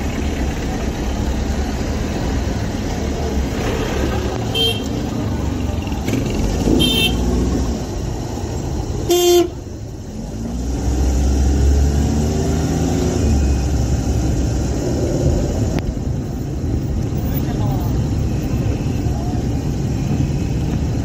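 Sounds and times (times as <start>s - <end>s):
vehicle engines rumbling: 0.0s - 21.0s
loud horn blast: 6.7s - 7.3s, 9.1s - 9.6s.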